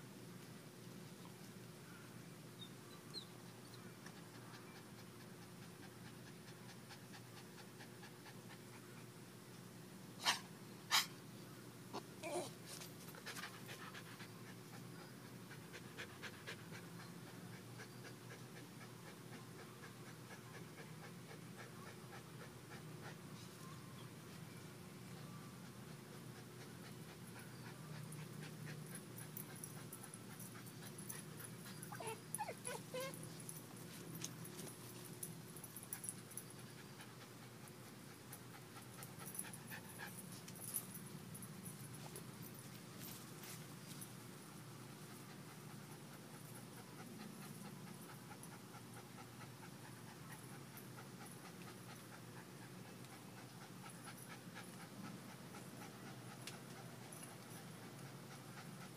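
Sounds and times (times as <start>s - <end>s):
puppy panting: 25.6s - 33.5s, 45.1s - 58.9s.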